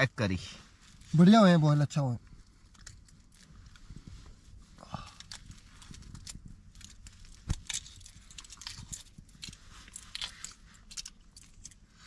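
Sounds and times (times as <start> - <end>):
eggshell cracking and peeling: 2.6 - 3.9, 5.0 - 11.9.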